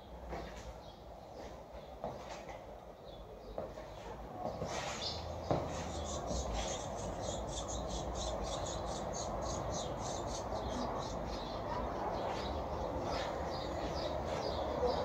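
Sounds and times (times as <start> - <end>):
city traffic hum: 0.0 - 15.0
small birds chirping: 0.0 - 15.0.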